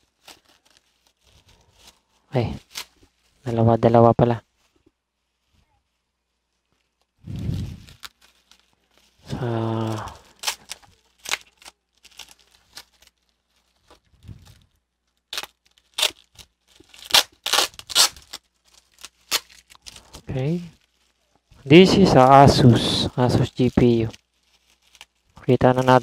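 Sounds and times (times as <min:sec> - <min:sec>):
bubble wrap crinkling and ripping: 0:00.0 - 0:26.0
person humming: 0:09.3 - 0:10.2.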